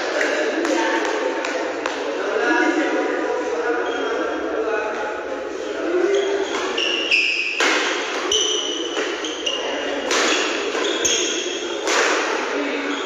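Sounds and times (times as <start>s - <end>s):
shoes squeaking on court floor: 3.8s - 4.5s, 6.0s - 11.9s, 12.7s - 13.0s
rackets hitting shuttlecock: 7.4s - 9.2s, 10.0s - 12.4s.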